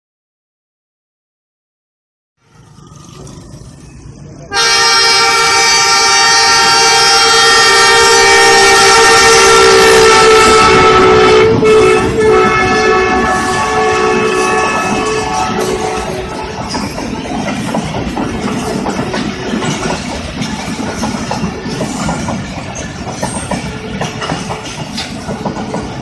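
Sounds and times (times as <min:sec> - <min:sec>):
train rumbling past: 0:02.4 - 0:26.0
locomotive horn blast: 0:04.5 - 0:16.7.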